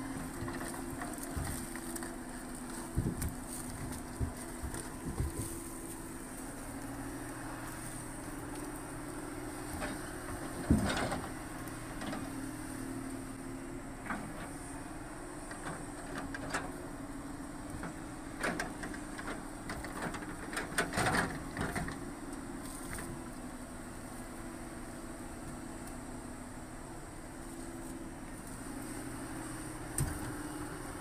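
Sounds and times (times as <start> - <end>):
heavy machinery engine running: 0.0 - 31.0
logs knocking and thumping: 0.2 - 5.9, 9.7 - 11.4.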